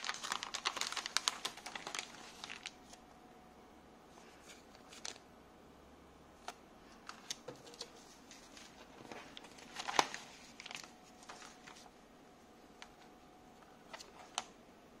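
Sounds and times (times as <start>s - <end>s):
plastic bags crinkling: 0.0s - 3.0s, 7.0s - 11.9s.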